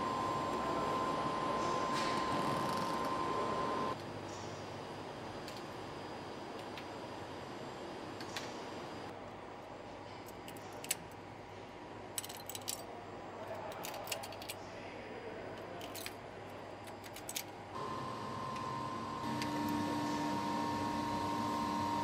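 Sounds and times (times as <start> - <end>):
blasting cabinet hum: 0.0 - 9.3, 15.9 - 22.0
low factory hum: 0.0 - 22.0.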